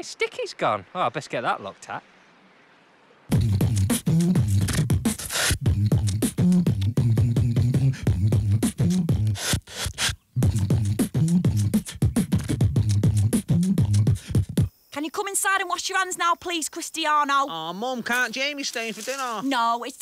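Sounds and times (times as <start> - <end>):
hummed bass line: 3.3 - 9.4, 10.4 - 14.7
person beatboxing: 3.3 - 14.7.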